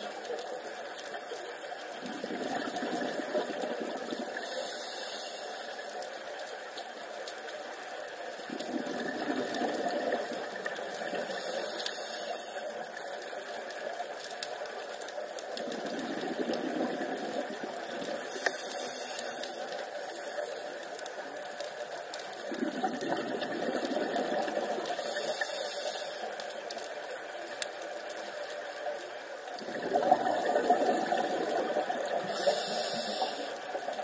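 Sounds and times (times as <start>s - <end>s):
exhaled bubbles underwater: 1.6s - 4.8s, 8.4s - 11.8s, 15.0s - 19.6s, 22.1s - 25.4s, 29.4s - 34.0s
regulator inhale hiss: 4.4s - 5.9s, 10.9s - 12.7s, 18.2s - 20.8s, 25.0s - 26.4s, 32.1s - 33.9s.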